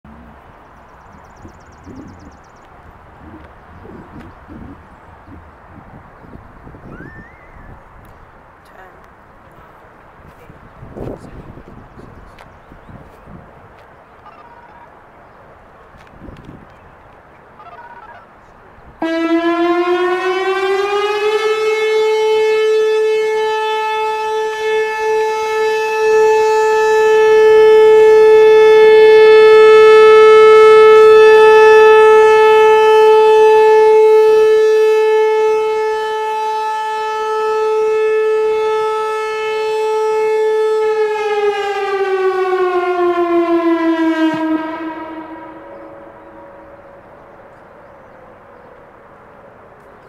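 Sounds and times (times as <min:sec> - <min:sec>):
warning siren tone: 0:01.2 - 0:02.6, 0:03.2 - 0:07.9, 0:19.0 - 0:48.5.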